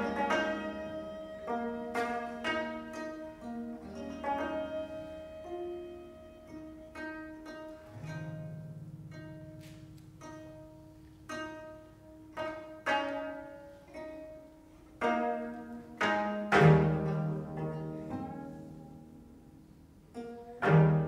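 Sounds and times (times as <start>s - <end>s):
low cello note: 0.0s - 12.6s
plucked zither notes: 0.0s - 21.0s.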